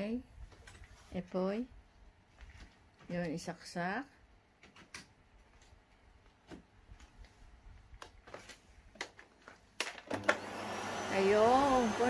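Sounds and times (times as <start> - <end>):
vacuum cleaner motor running: 10.1 - 12.0.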